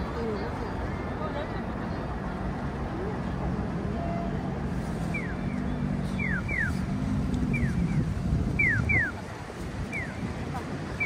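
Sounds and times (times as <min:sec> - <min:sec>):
low traffic rumble: 0:00.0 - 0:11.0
crossing signal electronic chirps: 0:05.1 - 0:06.9, 0:07.5 - 0:09.2.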